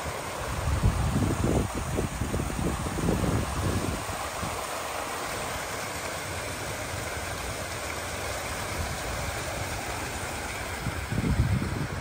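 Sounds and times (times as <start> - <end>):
water rushing through channels: 0.0 - 12.0.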